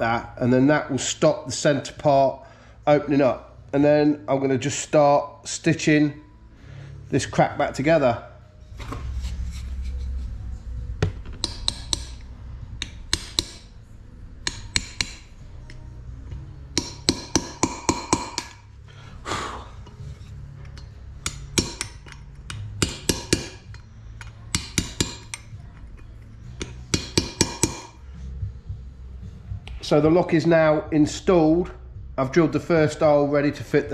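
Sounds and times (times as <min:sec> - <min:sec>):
hammer tapping steel punch: 0:11.0 - 0:13.8, 0:14.4 - 0:18.7, 0:20.6 - 0:28.0.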